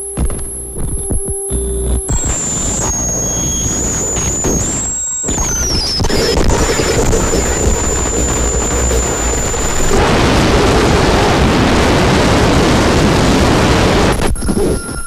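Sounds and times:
distorted noise wall: 0.0s - 15.0s
deep rumble: 6.2s - 14.2s.

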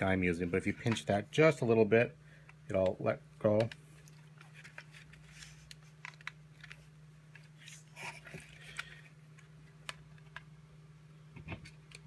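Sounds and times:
low steady hum: 0.0s - 12.0s
small plastic clicks and crackles: 2.8s - 7.5s.

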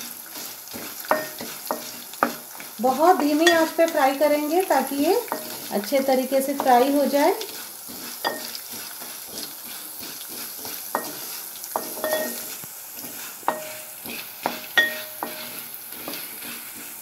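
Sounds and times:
spatula scraping pan: 0.0s - 17.0s
spices sizzling in oil: 0.0s - 17.0s
spatula knocking metal pan: 1.1s - 2.5s, 8.2s - 8.6s, 10.6s - 11.2s, 11.8s - 12.5s, 13.5s - 15.6s.

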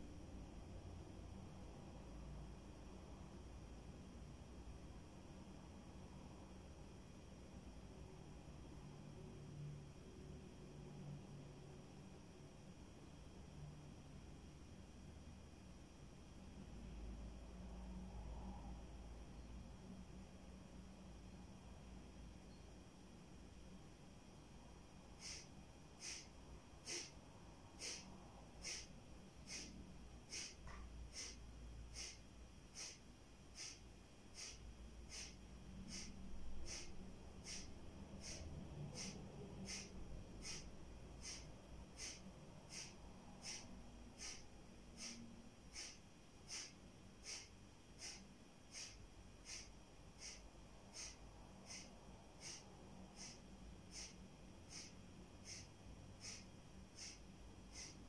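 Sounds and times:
forceful nasal exhalations: 25.2s - 27.2s, 27.8s - 58.0s.

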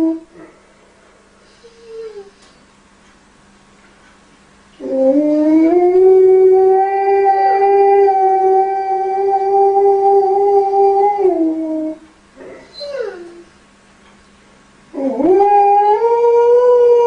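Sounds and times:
dog howling: 4.8s - 12.0s, 12.7s - 13.5s, 15.0s - 17.0s.

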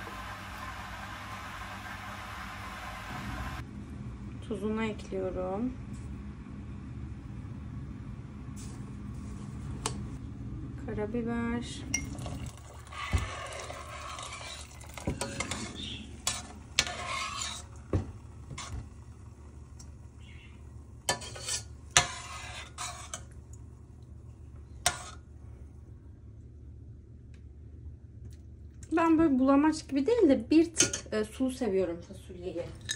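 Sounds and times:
steady low hum: 0.0s - 32.9s
spoon scraping pot: 12.9s - 17.8s, 21.1s - 23.3s, 24.7s - 25.2s.

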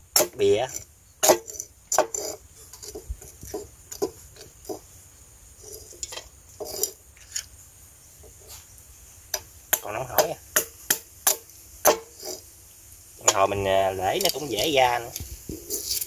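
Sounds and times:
machete chopping snail shells: 0.1s - 2.3s, 9.4s - 12.1s
snail shells clinking: 13.2s - 16.0s.

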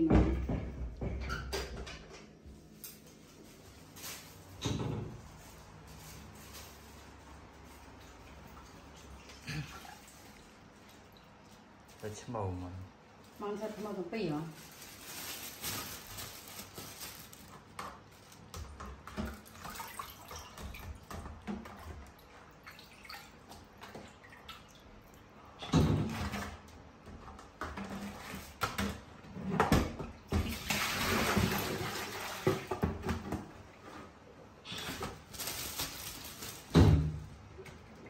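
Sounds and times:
water sloshing in plastic basin: 3.1s - 38.0s
plastic ware knocking against sink: 28.6s - 33.5s.

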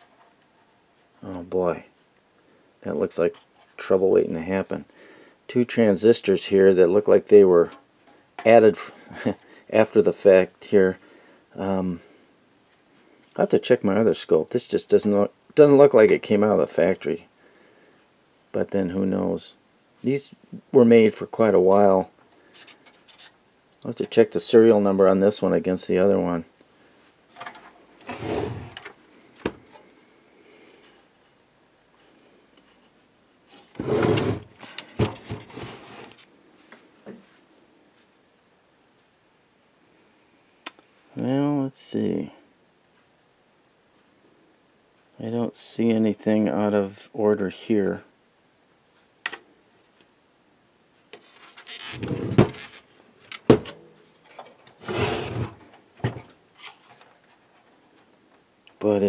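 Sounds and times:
handling rubbing and scraping: 0.0s - 1.6s, 27.3s - 29.9s, 32.6s - 36.3s, 51.1s - 58.4s
rough scrape: 27.4s - 28.8s, 33.6s - 36.2s, 51.2s - 52.8s, 54.8s - 55.7s.

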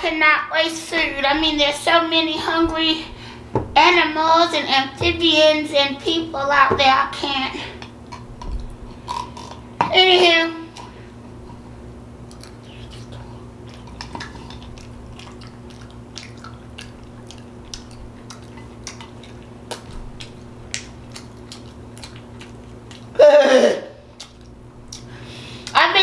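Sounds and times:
chewing and mouth smacking: 12.3s - 23.2s, 24.1s - 25.8s
wet mouth clicks: 12.3s - 23.2s, 24.1s - 25.8s
short falling vocal sound: 23.2s - 24.0s.

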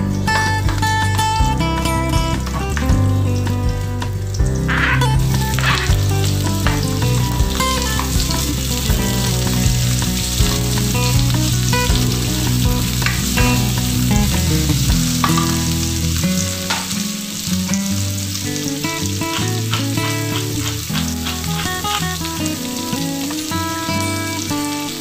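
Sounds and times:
low music tones: 0.0s - 25.0s
onions sizzling in hot oil: 4.1s - 25.0s
spatula scraping and tapping pan: 15.1s - 15.9s, 18.6s - 23.6s.

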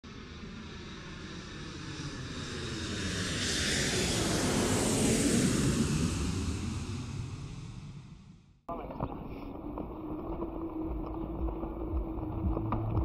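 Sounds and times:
airplane engine passing: 0.1s - 8.4s.

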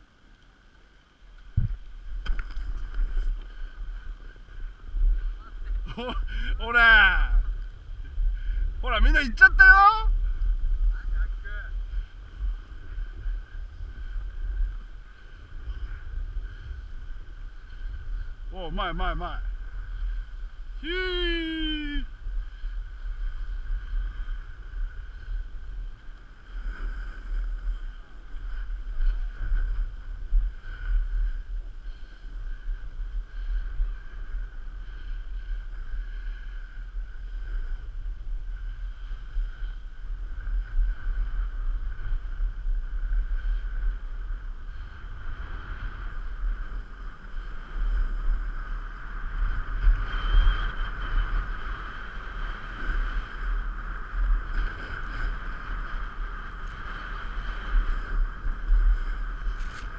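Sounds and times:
skis scraping snow: 0.8s - 9.8s, 22.3s - 59.9s
wind rushing over microphone: 1.2s - 59.9s.

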